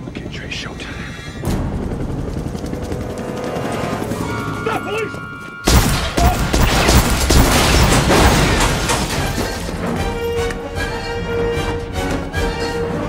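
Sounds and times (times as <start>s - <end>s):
background music: 1.2s - 13.0s
rapid gunfire barrage: 5.6s - 9.7s.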